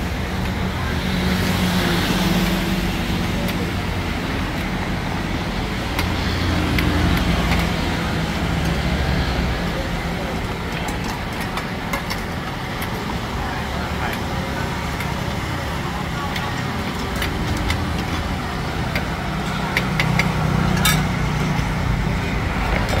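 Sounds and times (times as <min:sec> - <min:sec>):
gas burners running: 0:00.0 - 0:23.0
metal utensils clinking on hot plate: 0:16.3 - 0:21.3.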